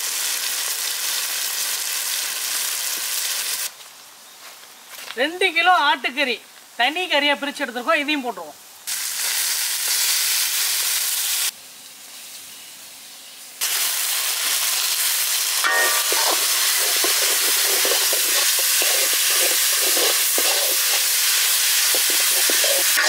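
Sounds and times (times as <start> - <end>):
meat sizzling in oil: 0.0 - 3.7, 8.8 - 23.0
metal ladle scraping pan: 15.6 - 23.0.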